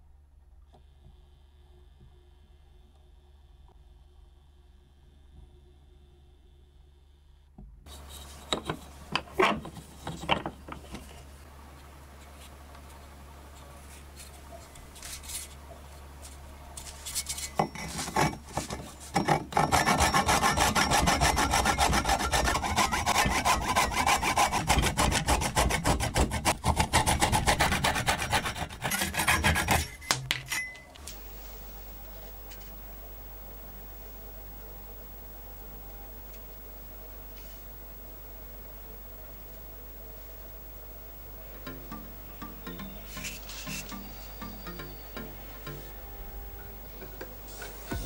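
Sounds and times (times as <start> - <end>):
hand saw cutting wood: 17.9 - 30.1, 41.9 - 45.8
knocks and clicks: 41.5 - 48.0.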